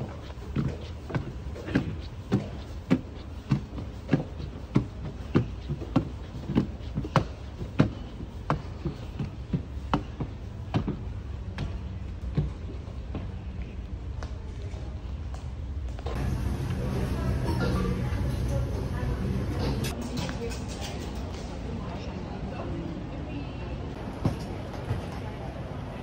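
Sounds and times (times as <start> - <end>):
footsteps clicking: 0.0 - 14.3
low hum: 16.1 - 19.9.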